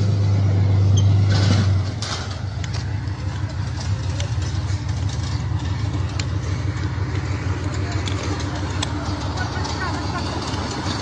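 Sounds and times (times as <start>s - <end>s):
heavy engine rumbling: 0.0s - 11.0s.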